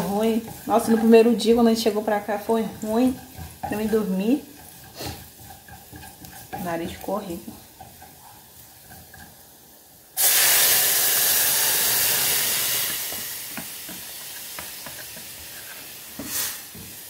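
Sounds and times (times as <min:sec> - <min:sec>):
beans sizzling in hot oil: 0:00.0 - 0:17.0.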